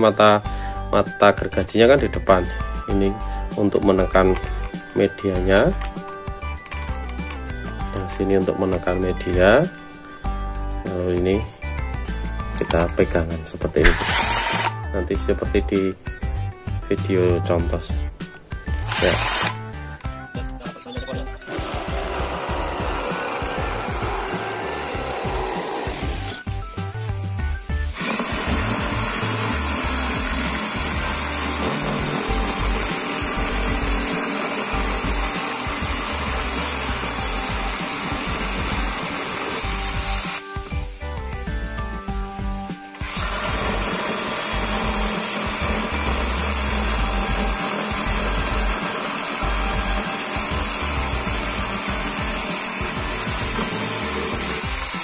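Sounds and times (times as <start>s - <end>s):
background music: 0.0s - 55.0s
saw cutting plastic: 13.7s - 15.0s, 18.7s - 26.5s, 27.8s - 40.4s, 42.9s - 55.0s
saw cutting wood: 13.8s - 14.8s, 18.7s - 19.6s, 21.1s - 26.4s, 27.8s - 40.4s, 42.9s - 55.0s.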